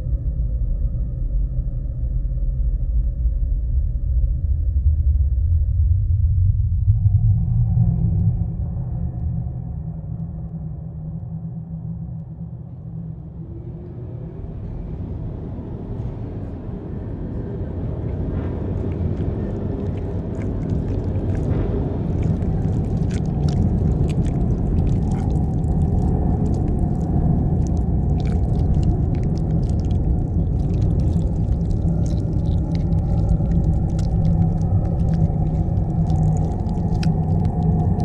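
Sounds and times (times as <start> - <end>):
low rumbling drone: 0.0 - 38.0
faint clicks and crackles: 18.0 - 38.0.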